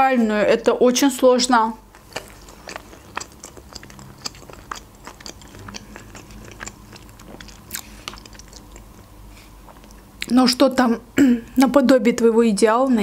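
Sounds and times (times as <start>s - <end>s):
chewing food with crunches: 1.8s - 10.4s
wet mouth clicks: 2.0s - 9.0s.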